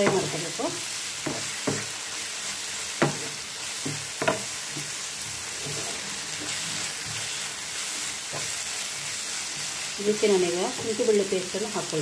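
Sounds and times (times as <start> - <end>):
vegetables sizzling in oil: 0.0 - 12.0
wooden spatula stirring in pan: 0.0 - 12.0
spatula knocking against pan: 3.0 - 4.9.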